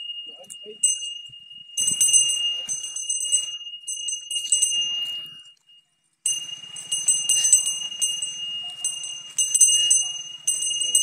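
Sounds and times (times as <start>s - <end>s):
bells jingling: 0.0s - 11.0s.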